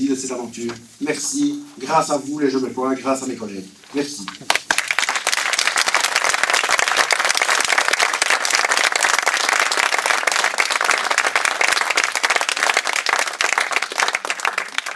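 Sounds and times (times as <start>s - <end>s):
audience applauding: 4.4s - 14.9s.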